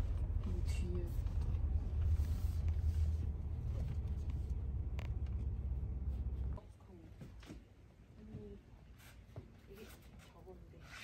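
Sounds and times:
car rumbling in motion: 0.0 - 6.6.

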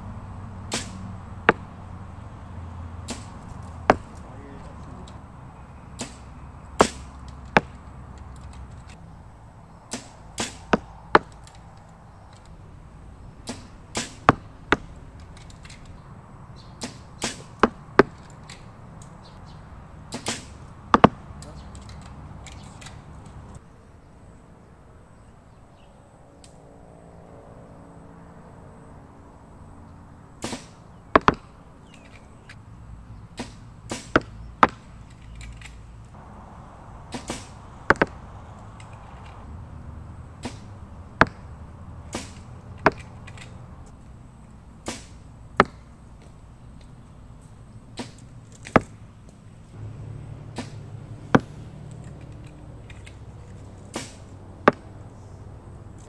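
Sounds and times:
low steady background noise: 0.0 - 56.0
arrows released with sharp cracks: 0.6 - 1.8, 3.0 - 5.2, 5.9 - 9.1, 9.7 - 12.6, 13.2 - 16.0, 16.6 - 23.6, 30.4 - 32.7, 33.3 - 36.2, 37.1 - 39.5, 40.4 - 44.0, 44.8 - 49.4, 50.4 - 55.0.

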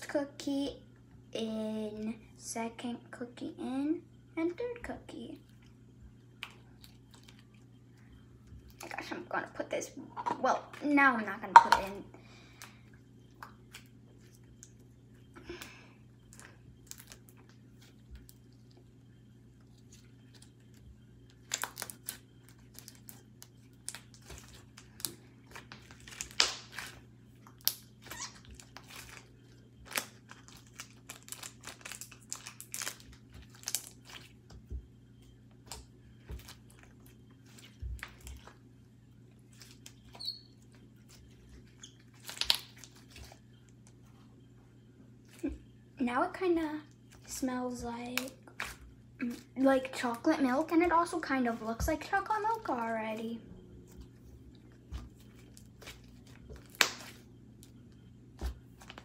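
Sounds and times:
slime kneaded by hand: 53.9 - 57.7.

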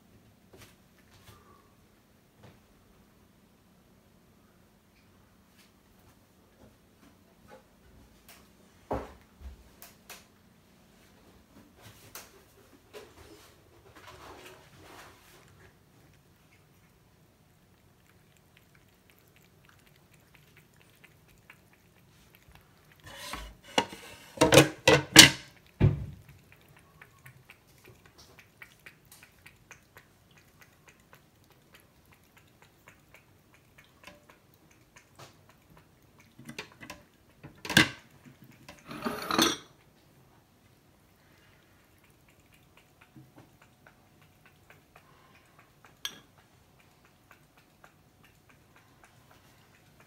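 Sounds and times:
cat lapping water: 12.3 - 50.0
metal bowl clinking clatter: 23.2 - 25.5, 38.8 - 39.7.

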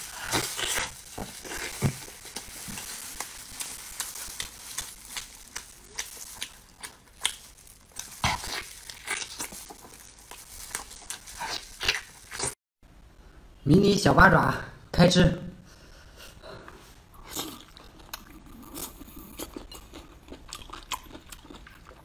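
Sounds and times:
wet chewing and smacking: 0.3 - 12.6, 17.2 - 22.0.

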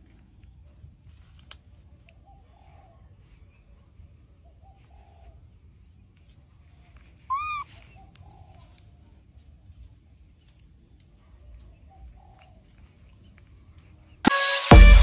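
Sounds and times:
loud bird call: 7.3 - 8.0
doves cooing softly: 7.3 - 9.1, 11.5 - 13.2.

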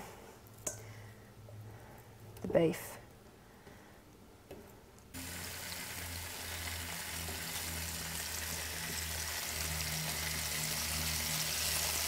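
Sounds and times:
beef sizzling in hot oil: 5.2 - 12.0.

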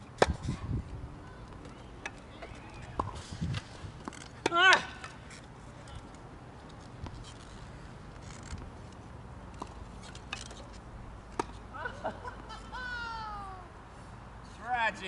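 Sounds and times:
person shouting: 4.5 - 5.0, 12.8 - 13.7.

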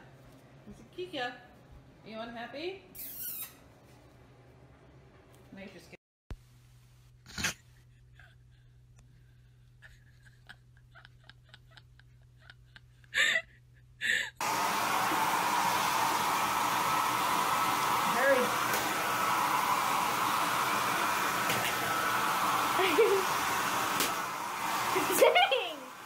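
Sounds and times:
hair dryer blowing: 14.4 - 26.0.

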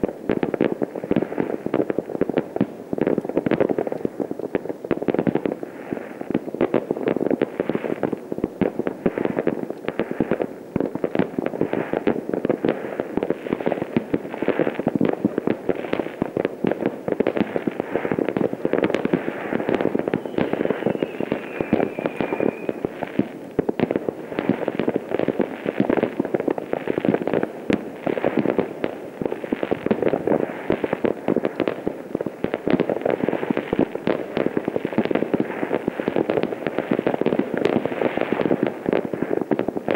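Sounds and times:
distant fireworks crackling: 0.0 - 39.9
faint falling whistle: 20.1 - 22.8.

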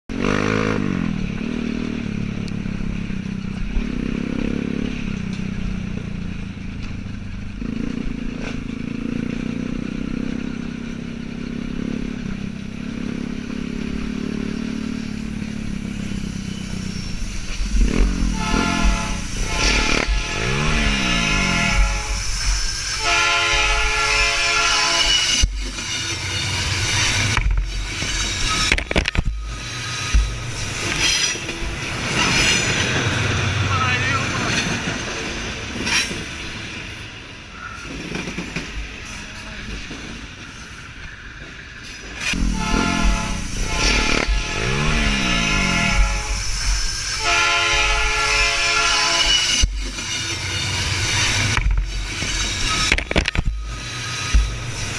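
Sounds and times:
dirt bike engine revving: 0.1 - 2.0, 17.7 - 22.2, 42.4 - 46.4
train passing with clattering wheels: 0.1 - 54.9
train air horn blasts: 17.8 - 25.4, 42.3 - 49.7.

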